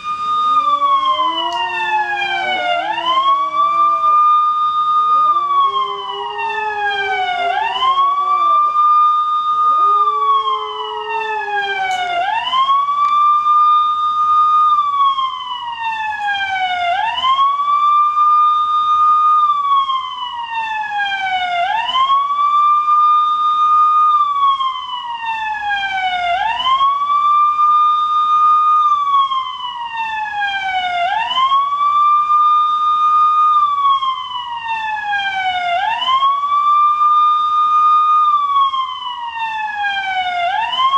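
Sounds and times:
siren wailing from a speaker: 0.0 - 40.9
dog howling: 0.2 - 12.6.

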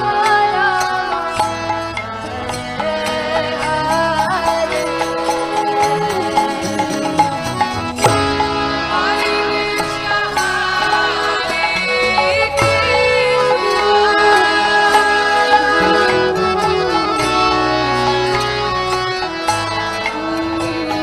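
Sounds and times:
held accompaniment tones: 0.0 - 21.0
bamboo flute melody: 12.2 - 19.0.

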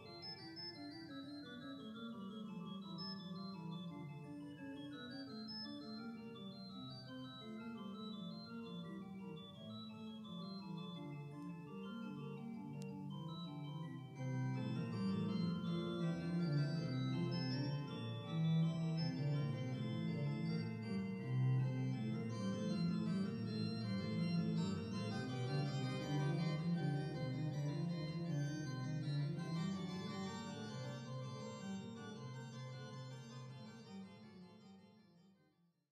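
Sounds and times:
organ playing slow chords: 7.3 - 35.0.

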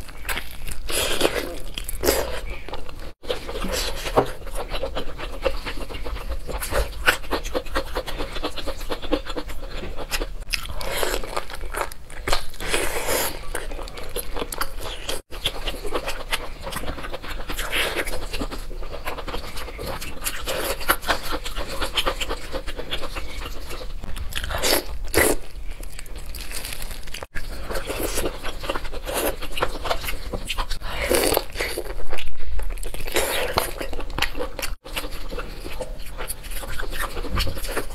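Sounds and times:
chewing and crunching: 0.0 - 37.9.

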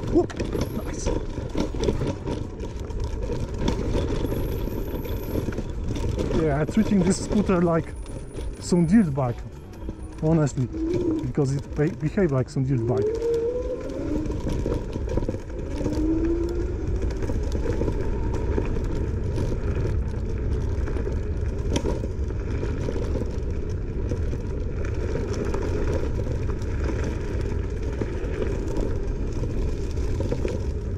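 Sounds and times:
electric scooter rumbling off-road: 0.0 - 30.9
rattles and clicks: 0.0 - 30.9.

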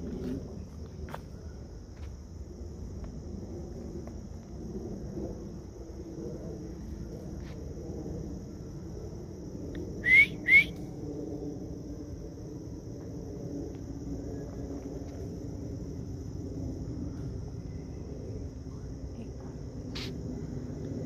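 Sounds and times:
high-pitched insect drone: 0.0 - 21.0
short rising whistles: 10.0 - 10.8.

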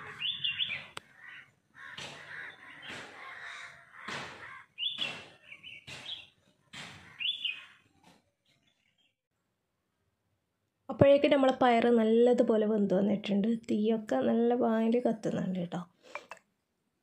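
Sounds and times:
crows cawing: 0.0 - 5.6, 6.8 - 7.9.

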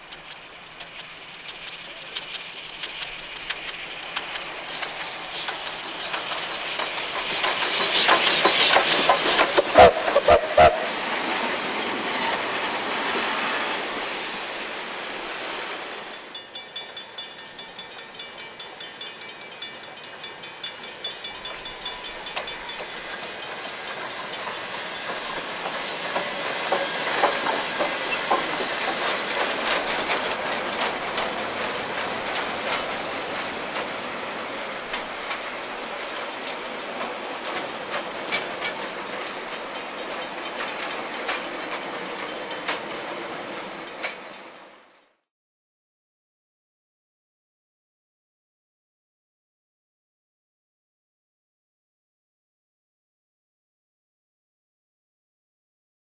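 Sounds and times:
steam hiss: 0.0 - 16.4, 20.0 - 44.6
wheels clattering over rail joints: 18.8 - 44.8.

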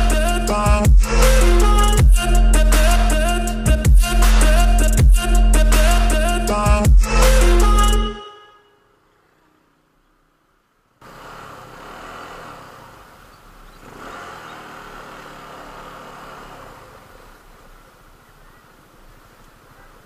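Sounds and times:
engine running steadily: 10.7 - 18.1.

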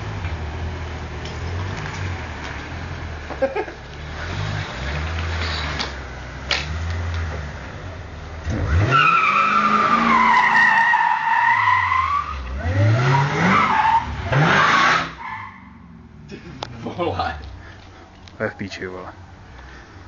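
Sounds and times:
car engine revving: 0.0 - 17.8
tyre squeal: 8.8 - 15.8.

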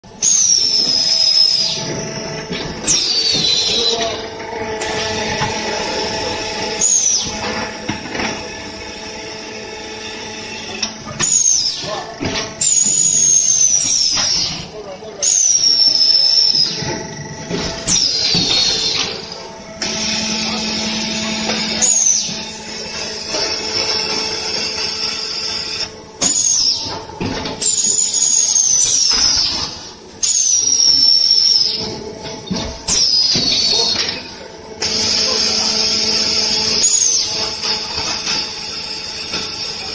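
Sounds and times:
concrete mixer humming: 0.0 - 39.9
high whine sinking in pitch: 0.0 - 39.9
high-pitched metallic squeals: 2.8 - 7.8, 12.6 - 27.0, 27.6 - 32.0, 32.9 - 39.9.

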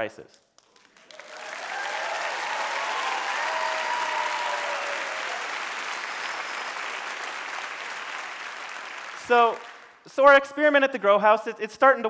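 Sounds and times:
audience applauding: 0.6 - 10.0.

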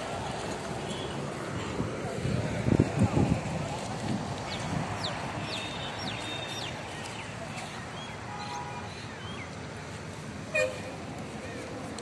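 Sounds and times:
steady outdoor hiss: 0.0 - 12.0
birds whistling: 4.5 - 9.5.

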